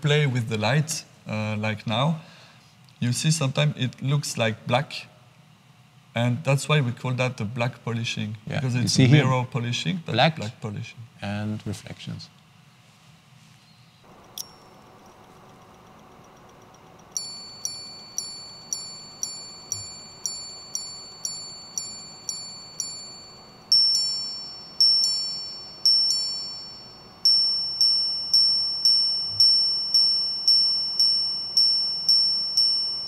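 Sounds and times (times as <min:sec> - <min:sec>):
high-pitched minute strikes: 0:16.3 - 0:33.0.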